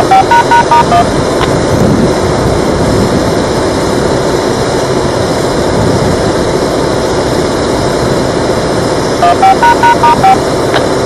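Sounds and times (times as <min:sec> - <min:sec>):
short loud beeps at stepping pitches: 0:00.0 - 0:01.1, 0:09.2 - 0:10.4
loud steady rushing noise: 0:00.0 - 0:11.0.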